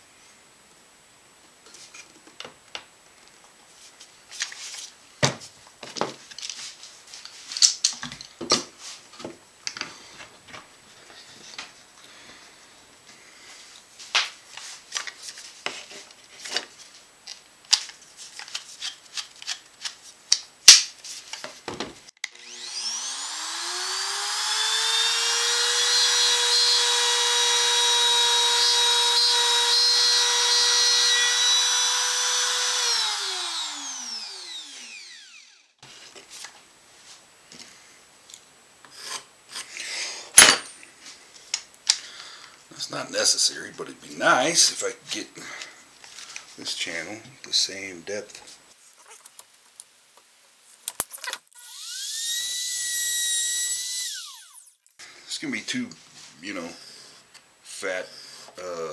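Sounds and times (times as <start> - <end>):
router whining: 22.2 - 35.8, 51.5 - 54.9.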